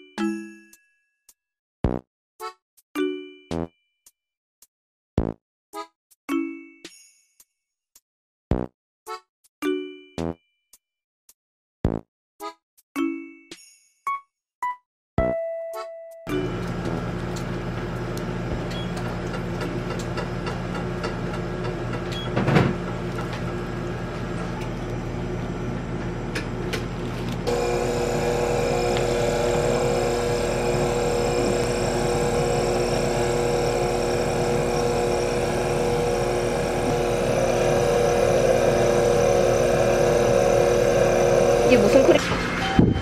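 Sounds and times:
stand mixer whisking: 0:16.4 - 0:42.2.

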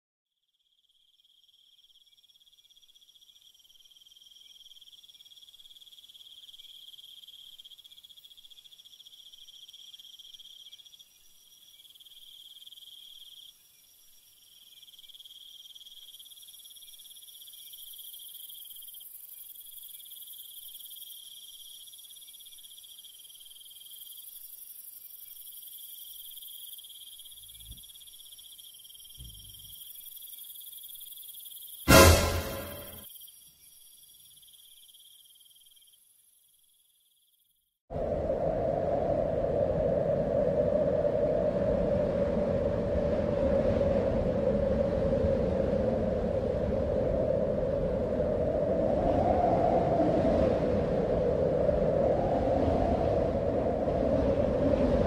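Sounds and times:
high-pitched insect trilling: 0:00.5 - 0:32.0, 0:32.6 - 0:37.6.

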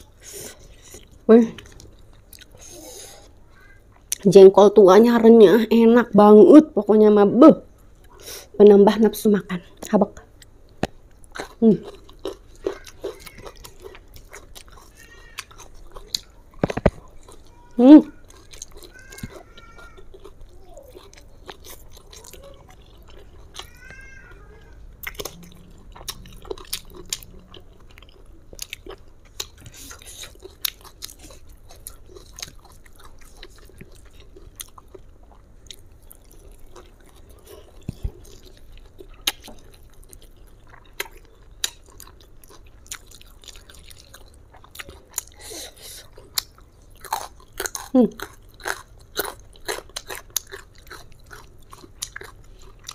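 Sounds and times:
person chewing: 0:00.0 - 0:04.3, 0:09.8 - 0:52.9
light food crunches: 0:10.4 - 0:17.5, 0:46.1 - 0:52.9.

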